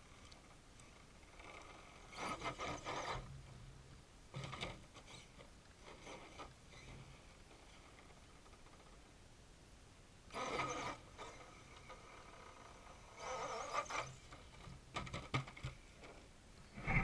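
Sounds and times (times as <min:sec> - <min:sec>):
toy truck motor whirring: 0:00.1 - 0:03.3, 0:04.4 - 0:08.8, 0:10.3 - 0:15.7.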